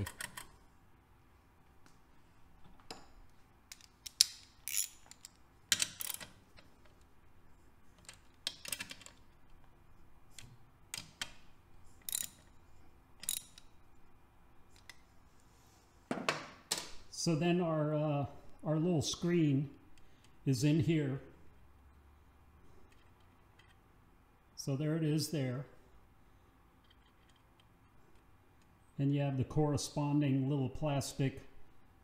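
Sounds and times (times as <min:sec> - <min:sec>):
ratchet wrench clicking: 0:03.7 - 0:06.4, 0:12.0 - 0:12.5, 0:13.2 - 0:13.8.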